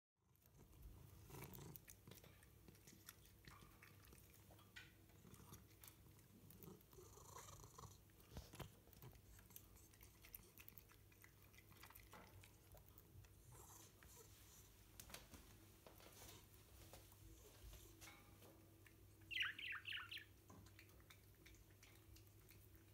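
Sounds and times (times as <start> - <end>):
cat chewing bread: 0.2 - 15.3, 20.3 - 22.9
low steady hum: 0.2 - 22.9.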